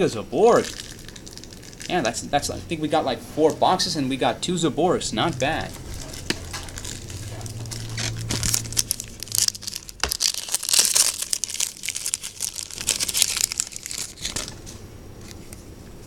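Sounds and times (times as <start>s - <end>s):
foil wrapper crinkling and tearing: 0.4s - 2.4s, 5.7s - 15.6s.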